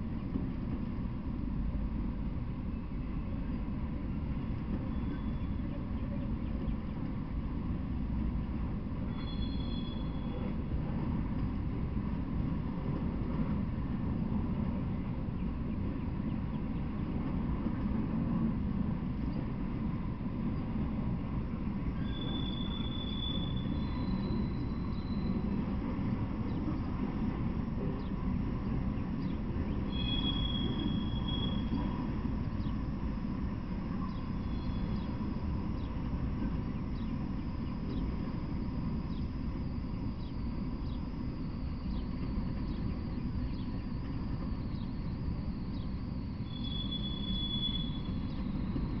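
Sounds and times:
train wheels rumbling on rails: 0.0s - 49.0s
high-pitched wheel squeals: 9.1s - 10.5s, 22.0s - 25.6s, 29.9s - 32.1s, 44.7s - 49.0s.

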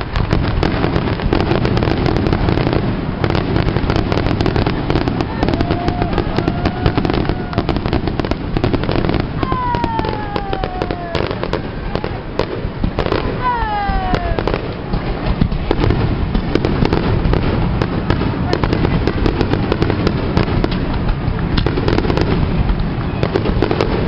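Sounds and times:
fireworks crackling and banging: 0.0s - 24.0s
rumble of explosions: 0.0s - 24.0s
firework whistle falling in pitch: 9.4s - 11.6s.

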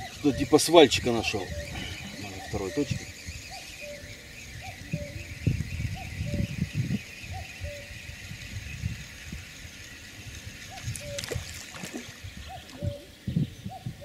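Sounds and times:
fishing feeder splashing into water: 10.9s - 12.2s.

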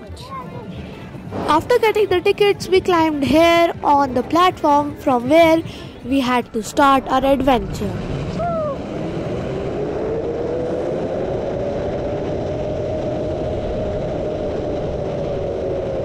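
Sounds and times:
wind noise on microphone: 0.0s - 16.0s
zipline pulleys whining on cable: 6.6s - 16.0s.

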